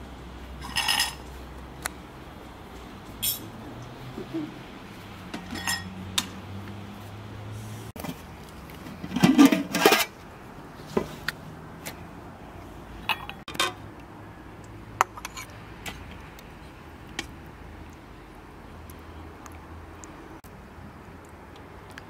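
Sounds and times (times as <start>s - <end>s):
metal pot lid clattering: 9.0s - 10.1s.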